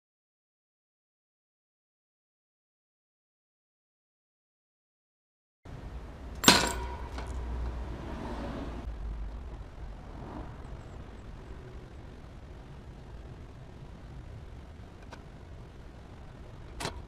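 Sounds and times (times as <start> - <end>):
low steady hum: 5.7 - 17.0
fan guard hitting concrete: 6.4 - 7.5
short rattle: 6.4 - 7.8.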